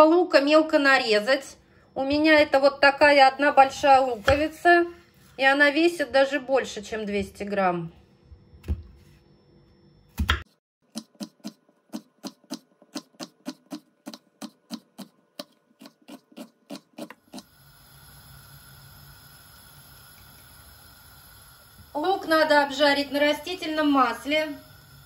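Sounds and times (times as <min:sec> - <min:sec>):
knife chopping onion on board: 0:04.2 - 0:04.6, 0:10.1 - 0:17.2
steady hiss: 0:17.3 - 0:25.0.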